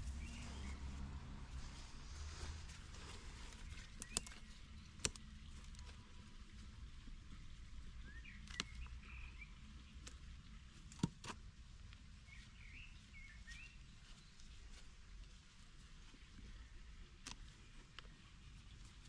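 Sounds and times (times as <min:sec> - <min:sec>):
birdsong chirping: 0:00.0 - 0:06.3, 0:08.0 - 0:10.2, 0:12.2 - 0:14.5.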